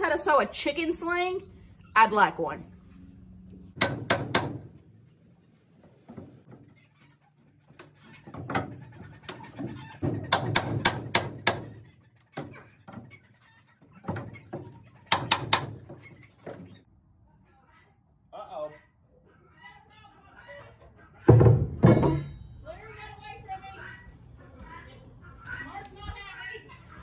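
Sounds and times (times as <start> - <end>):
hammer blows on wooden boards: 3.8 - 4.8, 10.0 - 11.8, 14.6 - 16.0.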